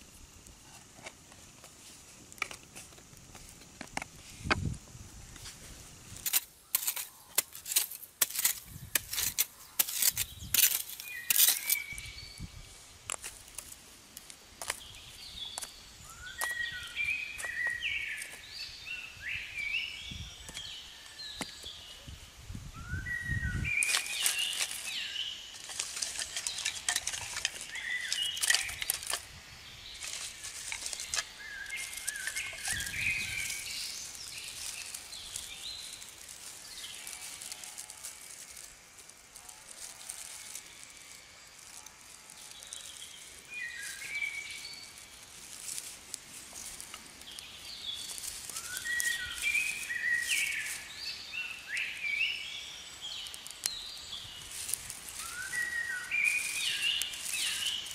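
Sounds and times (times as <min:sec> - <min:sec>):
sticks and twigs crackling: 0:00.0 - 0:22.2, 0:23.0 - 0:57.9
birds chirping: 0:14.6 - 0:22.2, 0:22.8 - 0:38.7, 0:46.6 - 0:57.9.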